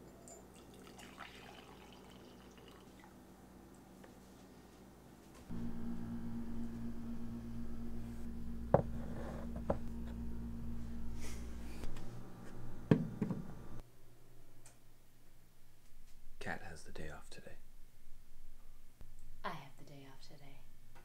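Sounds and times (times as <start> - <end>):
steady low hum: 3.3 - 16.9.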